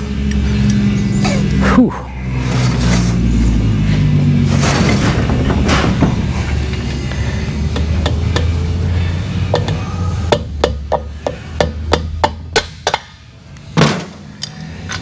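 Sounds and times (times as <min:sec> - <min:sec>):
mallet tapping on engine: 0:09.5 - 0:13.1.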